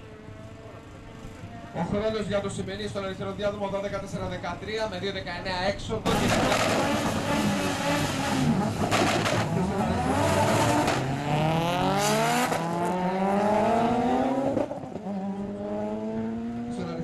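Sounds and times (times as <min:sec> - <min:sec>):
racing car engines revving: 0:06.1 - 0:17.0
racing cars accelerating away: 0:06.1 - 0:17.0.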